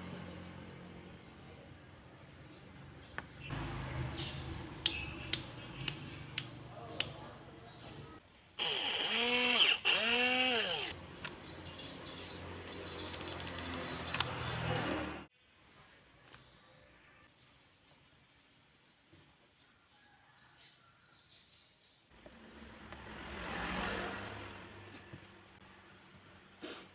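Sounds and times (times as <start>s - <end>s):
rocker switch clicks: 4.8s - 7.2s.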